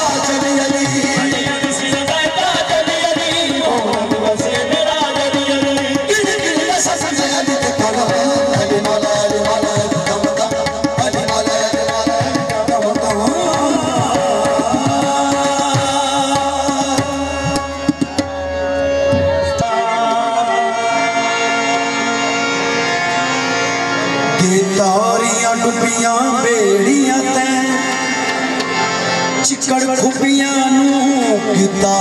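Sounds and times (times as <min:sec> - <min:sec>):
tabla drumming: 0:00.0 - 0:22.6, 0:24.3 - 0:32.0
harmonium playing chords: 0:00.0 - 0:32.0.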